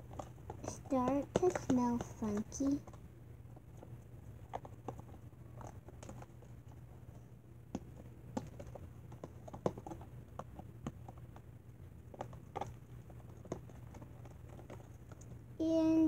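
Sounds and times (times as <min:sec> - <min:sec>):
utensil tapping against cup: 0:00.6 - 0:02.6.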